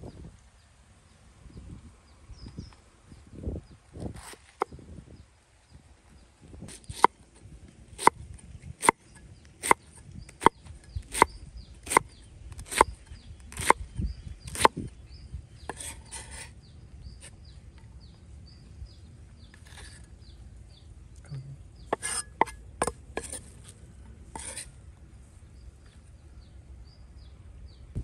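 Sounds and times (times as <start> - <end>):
cleaver chopping cabbage on wood: 6.7 - 7.2, 8.0 - 9.0, 9.6 - 13.8, 14.4 - 14.9.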